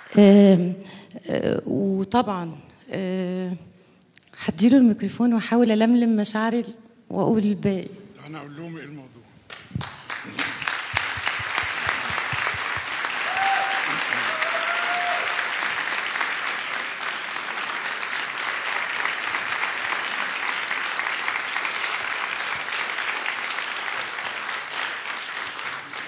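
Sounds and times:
audience applauding: 0:09.5 - 0:26.0.

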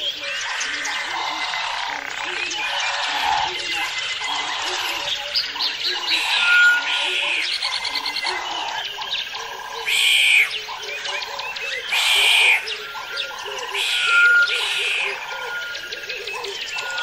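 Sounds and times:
frogs and birds calling: 0:00.0 - 0:17.0.

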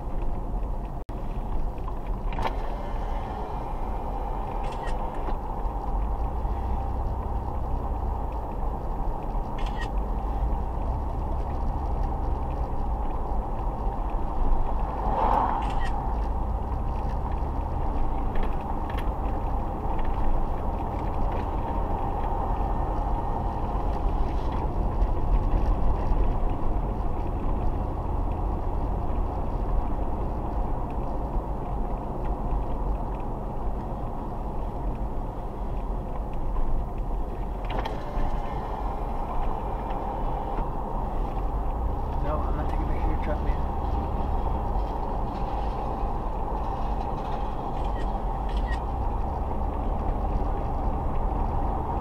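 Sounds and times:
car engine hum: 0:00.0 - 0:52.0
road and tyre noise: 0:00.0 - 0:52.0.

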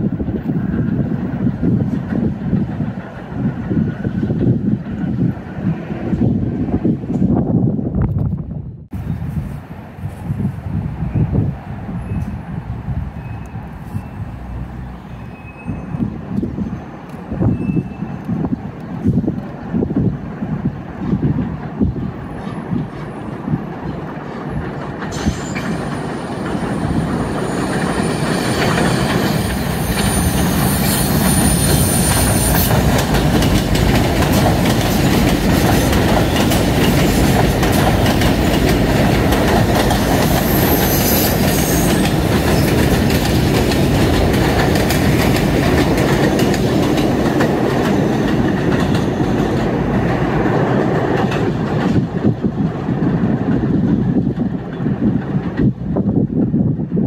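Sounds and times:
train wheels clattering on rail joints: 0:00.0 - 0:07.5, 0:15.2 - 0:56.4
high wheel squeal: 0:13.2 - 0:18.4, 0:25.1 - 0:32.8, 0:40.0 - 0:42.8.

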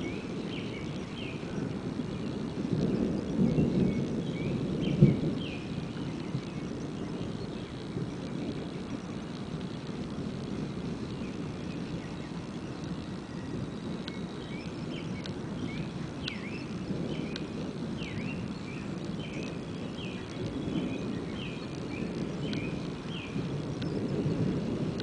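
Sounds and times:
distant thunder rumble: 0:00.0 - 0:25.0
bird chirping: 0:11.1 - 0:24.4.

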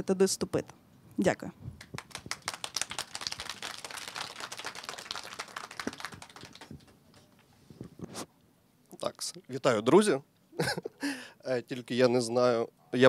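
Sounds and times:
audience applauding: 0:01.8 - 0:07.4.

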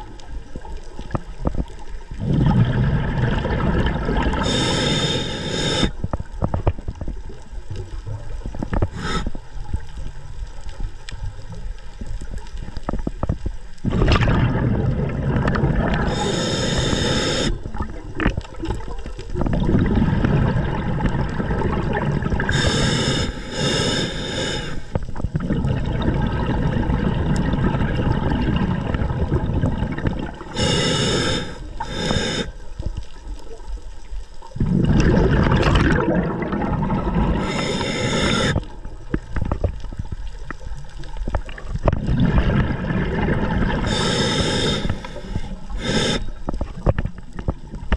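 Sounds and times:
short high hissing: 0:04.4 - 0:06.0, 0:09.0 - 0:09.3, 0:16.1 - 0:17.6, 0:22.5 - 0:25.0, 0:30.6 - 0:32.6, 0:37.4 - 0:38.6, 0:43.9 - 0:46.4
muffled underwater noise: 0:13.9 - 0:20.1, 0:34.8 - 0:38.8, 0:42.8 - 0:46.8.

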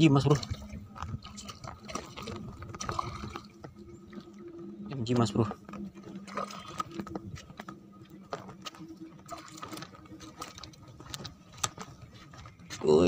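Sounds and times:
fish splashing and flopping: 0:00.0 - 0:12.8.

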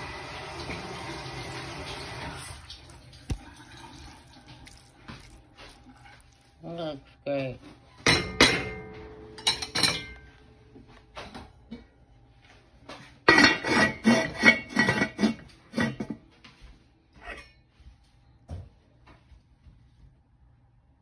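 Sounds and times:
pot lid clattering and scraping: 0:08.1 - 0:10.2, 0:13.2 - 0:16.2
spoon clinking against pot: 0:09.4 - 0:10.3.

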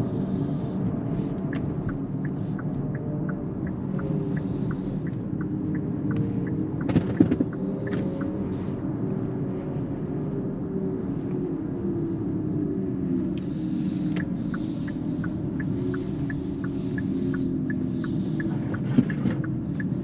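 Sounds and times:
tyre and road rumble in car: 0:00.0 - 0:20.0
light ticking: 0:00.8 - 0:08.4, 0:13.3 - 0:20.0.

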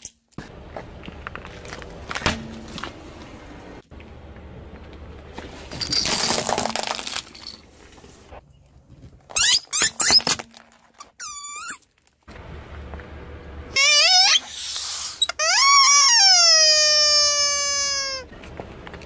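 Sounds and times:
tyre crunching small objects: 0:00.0 - 0:03.1, 0:05.4 - 0:08.1, 0:09.1 - 0:12.3
gliding squeaks: 0:09.3 - 0:10.4, 0:11.0 - 0:11.8, 0:13.7 - 0:18.4
short wavering squeal: 0:13.7 - 0:18.3.

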